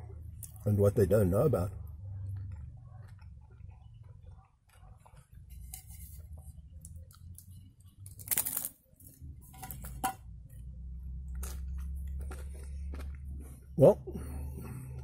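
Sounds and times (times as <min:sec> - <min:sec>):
chewing: 0:01.8 - 0:08.6, 0:10.5 - 0:15.0.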